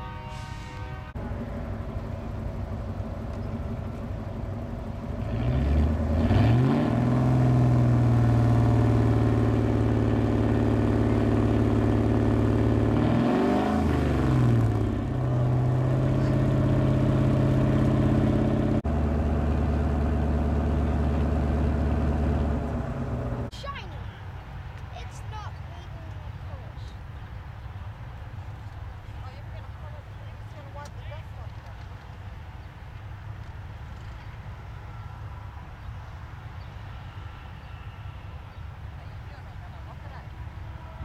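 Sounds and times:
diesel truck engine revving: 1.2s - 23.5s.

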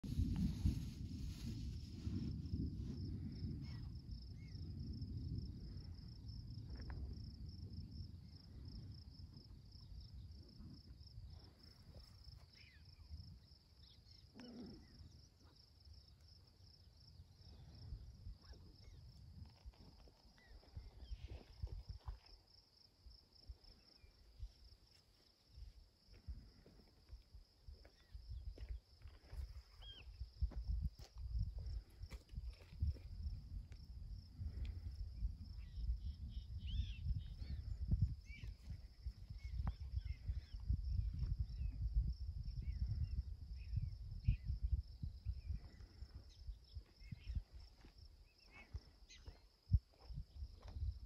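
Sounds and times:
wind on microphone: 0.0s - 13.5s, 27.7s - 51.0s
insect trill: 0.1s - 51.0s
faint chirps: 11.4s - 16.2s, 29.6s - 30.2s, 35.6s - 41.8s, 45.5s - 49.6s.

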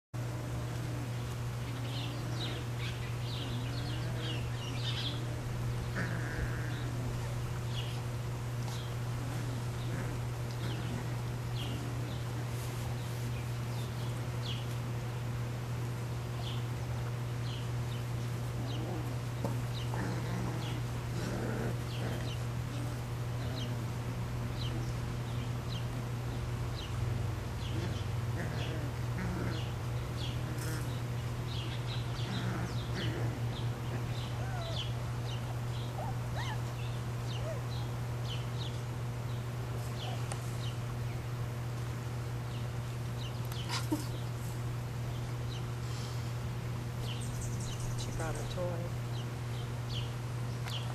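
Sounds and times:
steady low hum: 0.2s - 50.9s
puppies growling and squeaking: 0.3s - 14.8s, 17.4s - 26.2s, 27.6s - 38.8s, 39.7s - 40.7s.

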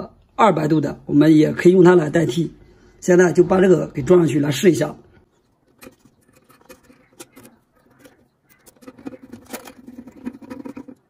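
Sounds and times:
screwdriver clicking and scraping: 5.6s - 11.0s.

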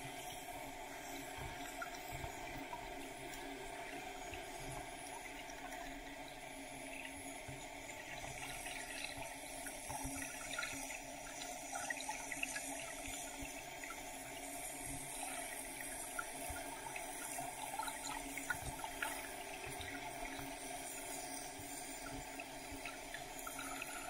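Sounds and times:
muffled underwater hiss: 0.0s - 24.0s.

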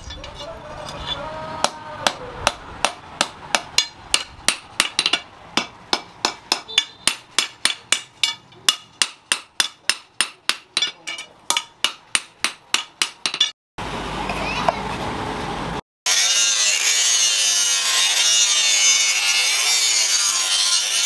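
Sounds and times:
hammer striking hot steel on anvil: 1.6s - 13.6s.

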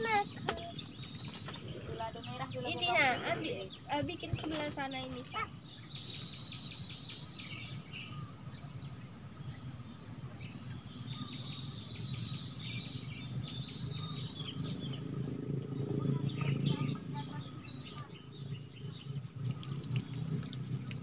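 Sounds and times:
insects chirping: 0.0s - 21.0s
steady low rumble: 12.3s - 21.0s.

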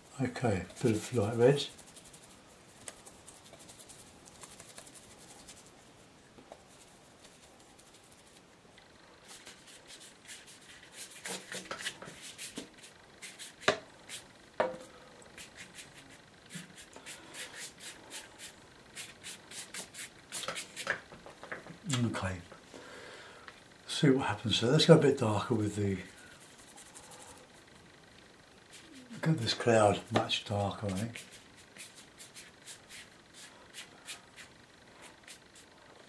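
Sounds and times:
brush strokes on wet paper: 0.4s - 5.9s, 9.2s - 14.2s
brush rubbing in palette: 0.4s - 8.5s, 9.2s - 14.3s, 15.3s - 20.9s, 25.5s - 27.7s, 28.7s - 35.8s.

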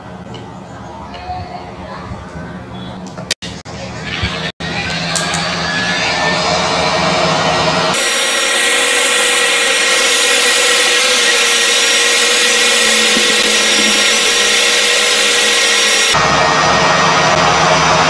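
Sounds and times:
hot air blower rushing: 5.8s - 18.0s.

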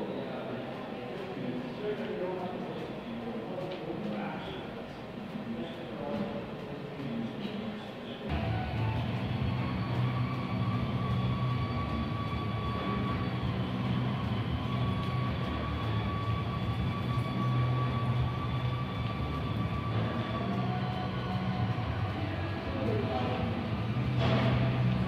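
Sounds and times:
high whine: 8.3s - 25.0s
mechanical drone with low hum: 8.3s - 25.0s.

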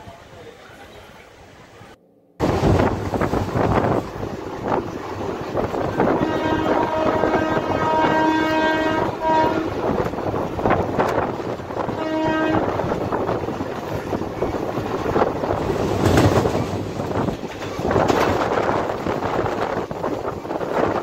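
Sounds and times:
wind: 0.0s - 21.0s
moving train rushing: 1.8s - 21.0s
train horn blasts: 6.0s - 10.1s, 11.7s - 13.0s.

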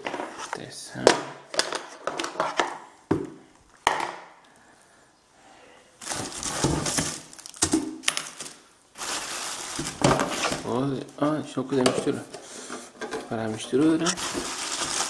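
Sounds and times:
cardboard and plastic crinkling: 6.0s - 10.9s, 13.0s - 15.0s.

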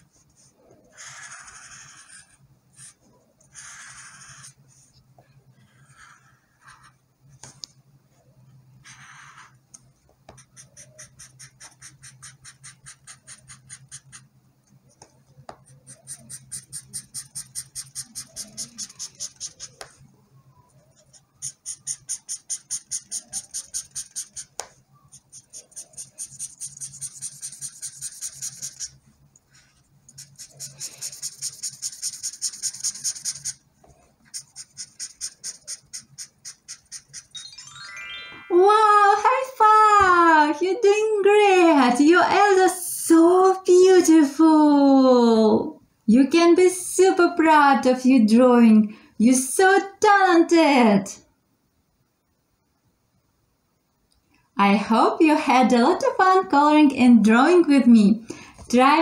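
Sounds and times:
marker scratching on paper: 0.0s - 4.9s, 5.6s - 7.0s, 8.8s - 9.6s, 10.3s - 14.3s, 15.6s - 20.0s, 21.0s - 33.6s, 34.2s - 37.3s.

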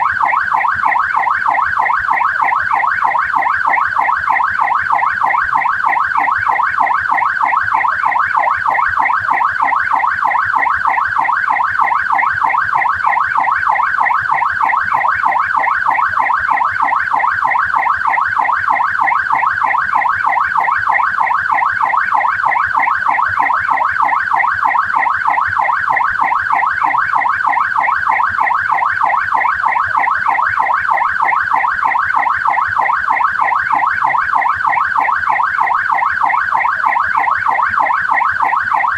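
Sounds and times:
police siren fast yelp: 0.0s - 38.9s.

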